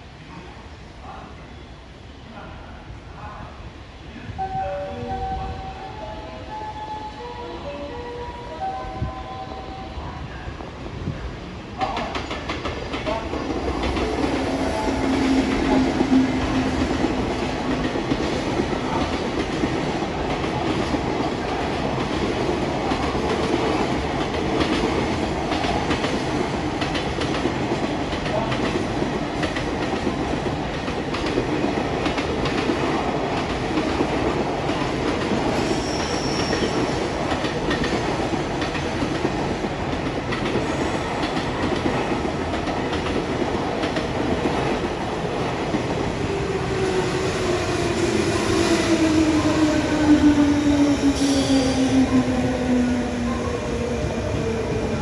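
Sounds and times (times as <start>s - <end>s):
freight train wheels clattering on rails: 11.8s - 55.0s.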